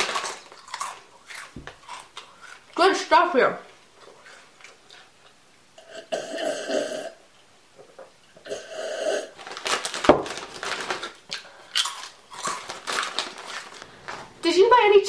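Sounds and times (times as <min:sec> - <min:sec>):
chip bag crinkling: 0:00.0 - 0:02.8, 0:09.4 - 0:14.3
loud chewing of chips: 0:00.0 - 0:06.5, 0:08.3 - 0:14.3
slurping from a mug: 0:08.4 - 0:09.4.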